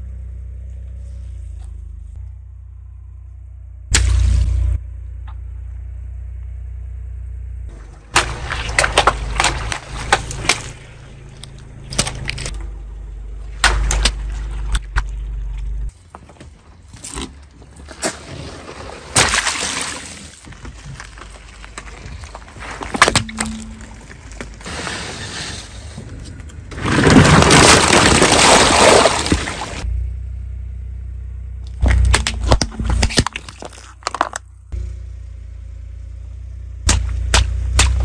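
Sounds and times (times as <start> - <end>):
car rumble: 0.0 - 19.2, 20.1 - 38.0
tyre crushing toys and balloons: 8.1 - 10.8, 26.0 - 29.8, 31.8 - 34.4.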